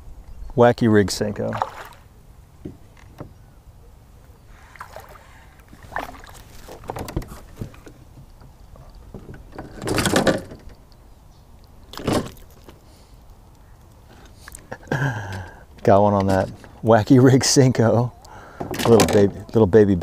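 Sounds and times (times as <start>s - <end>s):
fish splashing: 1.5s - 2.1s, 4.6s - 6.9s
knocks and clicks on kayak hull: 5.7s - 10.8s.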